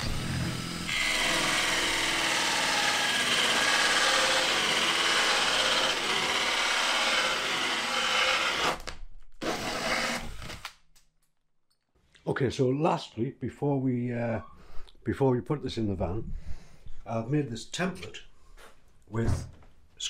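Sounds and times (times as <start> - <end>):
hole saw grinding wood: 0.0 - 10.6.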